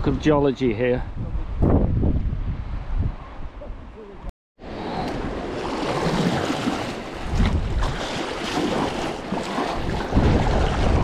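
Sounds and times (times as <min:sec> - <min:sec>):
wind buffeting microphone: 0:00.0 - 0:11.0
choppy sea water sloshing: 0:05.2 - 0:11.0.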